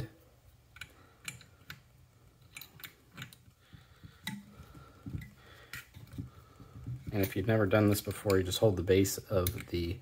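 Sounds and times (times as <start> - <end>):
small wrench clicks and taps: 0.7 - 6.3.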